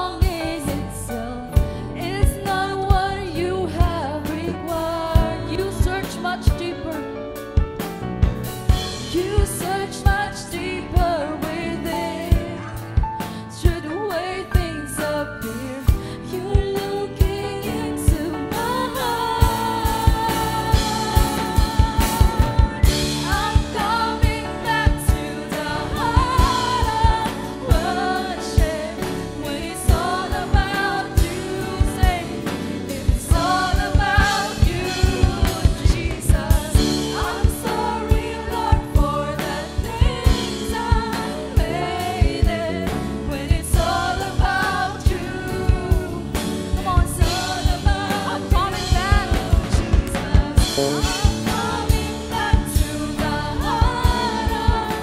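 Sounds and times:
steady drum beat: 7.4 - 13.8, 15.9 - 55.0
man singing into microphone: 50.6 - 51.4.

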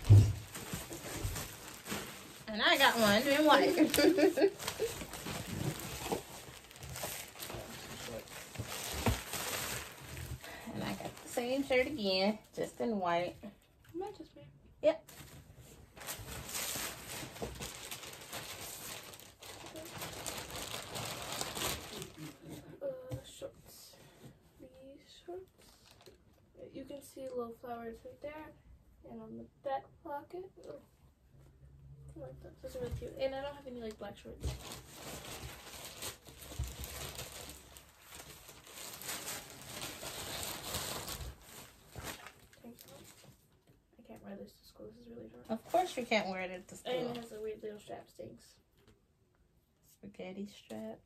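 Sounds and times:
plastic bag crinkling: 0.0 - 12.5, 16.0 - 22.5, 34.4 - 43.4.

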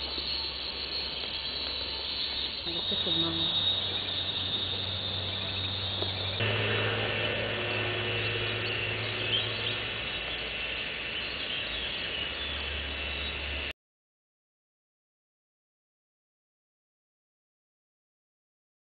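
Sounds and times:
faint bird chirps: 0.0 - 13.7
insects trilling: 0.0 - 13.7.

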